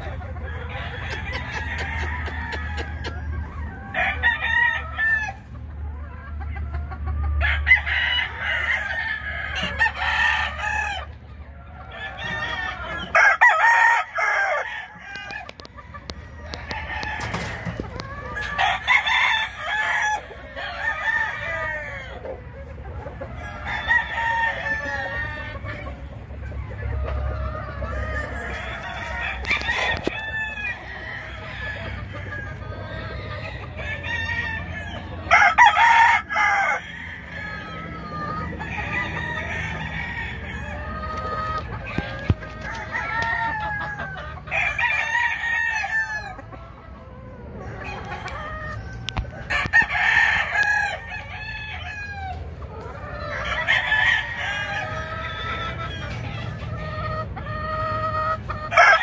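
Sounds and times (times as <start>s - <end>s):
hens clucking: 0.0s - 59.0s
rooster crowing: 0.5s - 3.2s, 3.8s - 5.4s, 7.4s - 11.1s, 11.8s - 22.3s, 23.4s - 25.8s, 27.7s - 32.8s, 33.4s - 46.4s, 47.6s - 52.4s, 53.4s - 55.8s, 58.7s - 59.0s.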